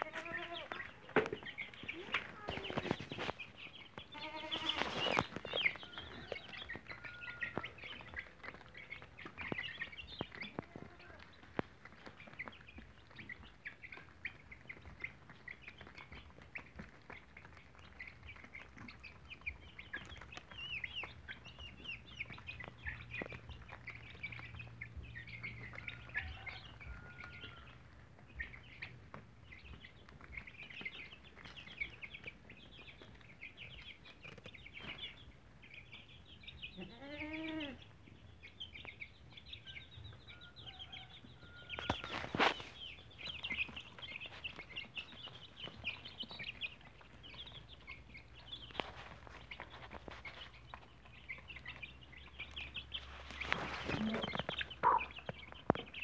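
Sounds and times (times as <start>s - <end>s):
beaks tapping on ground: 0.0s - 56.0s
chicks peeping: 0.0s - 56.0s
hen calling: 4.1s - 5.0s, 53.9s - 55.1s.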